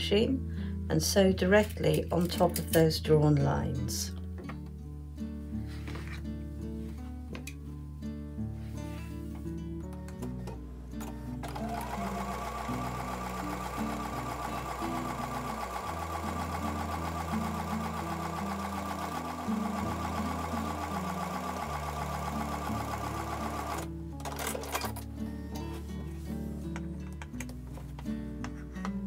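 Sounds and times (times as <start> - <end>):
soft acoustic guitar music: 0.0 - 29.0
electric sewing machine stitching: 11.0 - 25.0.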